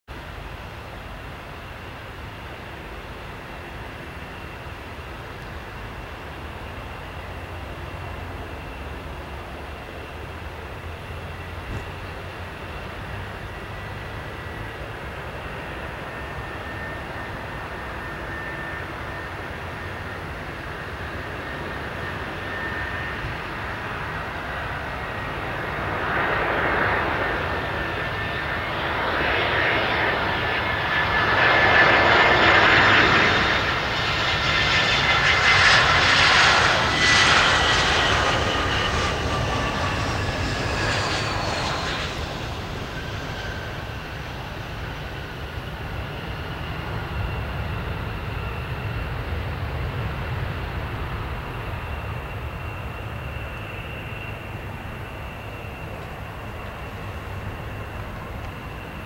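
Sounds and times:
jet engines rushing and whining: 0.1s - 59.0s.

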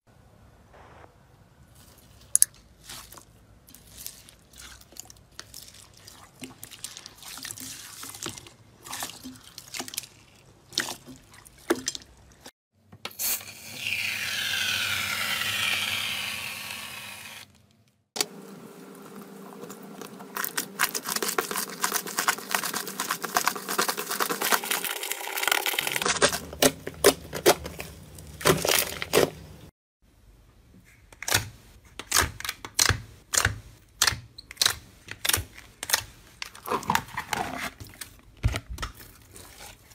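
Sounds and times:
slime squelching: 1.7s - 12.5s, 19.1s - 29.6s, 31.2s - 39.9s.

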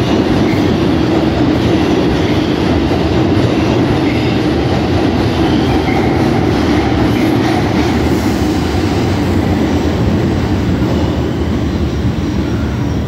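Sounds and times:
subway train rumbling on rails: 0.0s - 13.0s.

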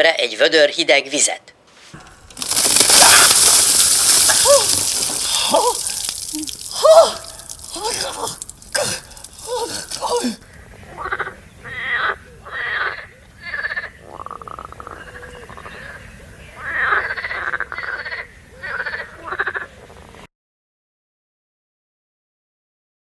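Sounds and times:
short falling cry: 2.4s - 10.4s
frogs croaking: 8.6s - 20.2s.

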